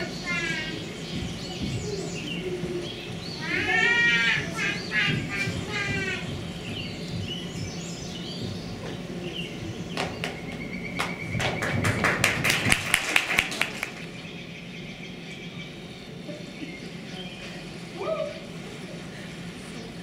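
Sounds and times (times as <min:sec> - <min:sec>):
audience clapping: 0:10.0 - 0:14.1.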